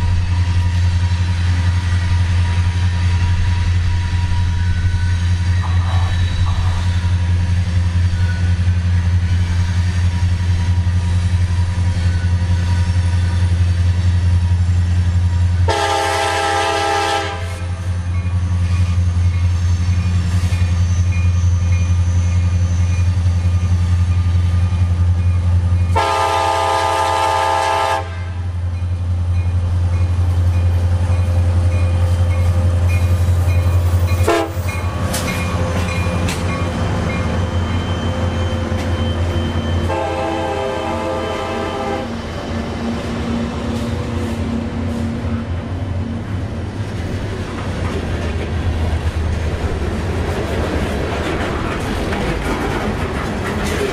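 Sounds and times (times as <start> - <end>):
diesel locomotives droning: 0.0 - 53.9
locomotive air horn blasts: 15.7 - 17.8, 25.9 - 28.5, 34.2 - 34.6, 39.8 - 42.2.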